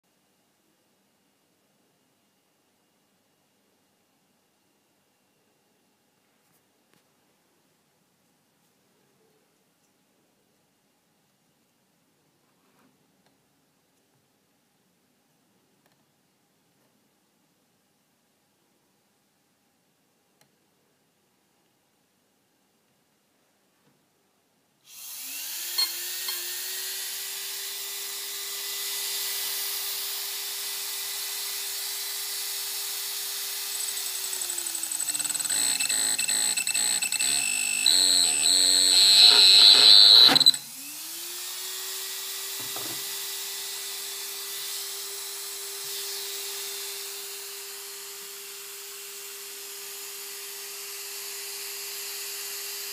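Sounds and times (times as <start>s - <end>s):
electric motor whine: 24.9s - 52.9s
stepping electronic whines: 33.9s - 41.2s.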